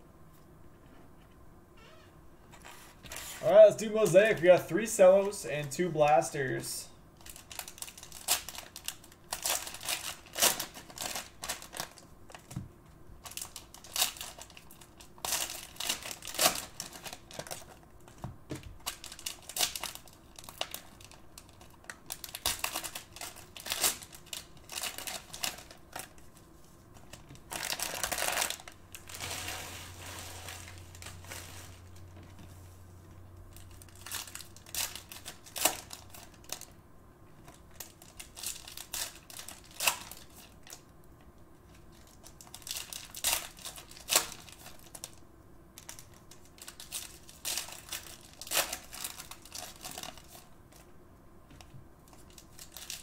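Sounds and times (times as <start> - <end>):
cellophane wrappers crinkling: 7.2 - 12.5, 13.2 - 32.2, 33.5 - 36.8, 37.4 - 40.8, 41.7 - 45.2, 45.8 - 50.9, 52.0 - 53.0.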